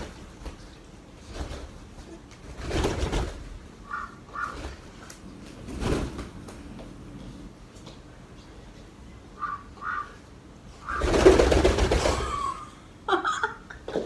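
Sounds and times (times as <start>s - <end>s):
wings flapping: 0.0s - 6.6s, 9.4s - 12.6s.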